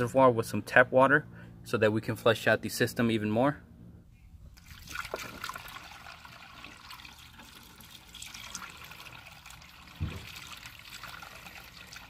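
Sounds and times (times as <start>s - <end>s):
water pouring through funnel: 4.6s - 12.0s
soft thump: 10.0s - 10.3s.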